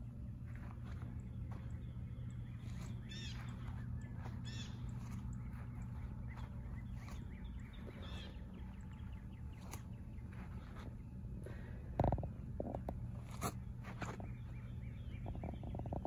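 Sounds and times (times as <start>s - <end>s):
birds calling: 0.0s - 16.0s
steady low hum: 0.0s - 16.0s
small bird chirps: 1.8s - 10.5s.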